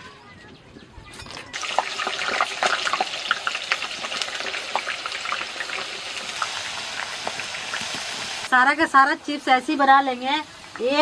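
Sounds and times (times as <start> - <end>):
potato slices sizzling in oil: 1.6 - 11.0.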